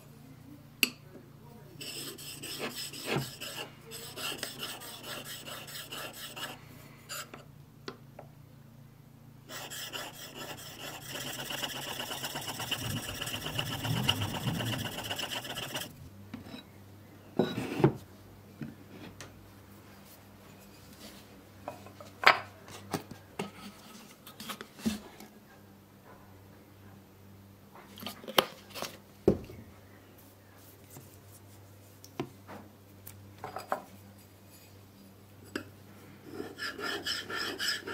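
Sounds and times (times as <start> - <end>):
blade scraping on whetstone: 1.8 - 7.4, 9.5 - 15.9, 36.3 - 37.9.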